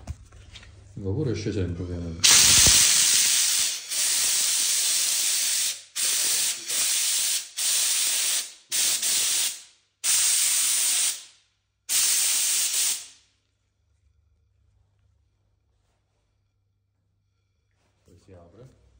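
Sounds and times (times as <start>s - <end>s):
steam jets hissing: 2.2s - 11.3s, 11.9s - 13.2s.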